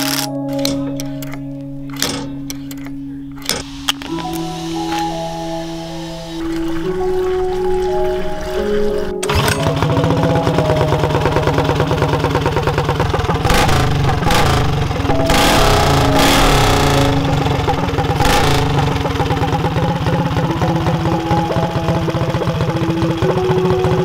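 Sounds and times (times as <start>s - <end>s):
go-kart engine revving: 9.2s - 24.0s.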